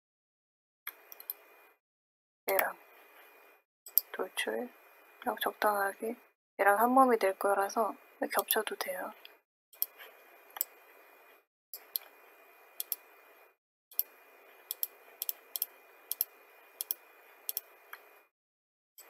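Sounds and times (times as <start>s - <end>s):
computer mouse clicking: 0.9s - 1.4s, 11.8s - 12.2s, 12.8s - 13.1s, 14.7s - 18.1s.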